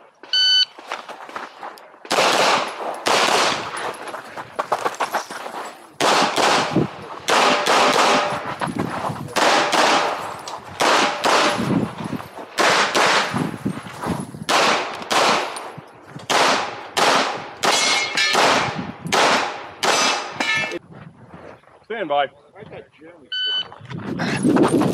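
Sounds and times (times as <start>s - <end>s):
rapid pistol shots echoing: 2.1s - 3.7s, 6.0s - 8.4s, 9.4s - 10.2s, 10.8s - 11.6s, 12.6s - 13.3s, 14.5s - 15.6s, 16.3s - 20.4s.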